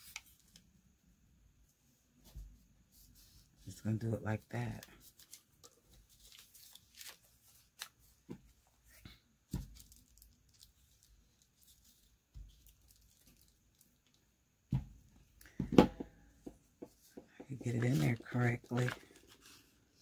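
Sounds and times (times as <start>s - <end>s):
paper rustling and tearing: 6.1s - 8.1s, 17.7s - 19.7s.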